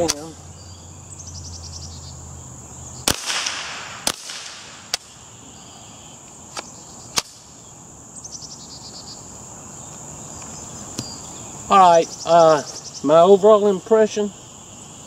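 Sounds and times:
insects buzzing: 0.0 - 15.0
suppressed rifle shots: 3.0 - 5.1.

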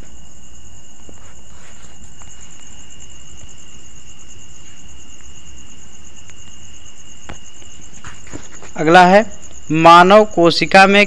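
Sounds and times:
faint steady tone: 0.0 - 10.5
high-pitched pulsing whine: 0.0 - 10.8.

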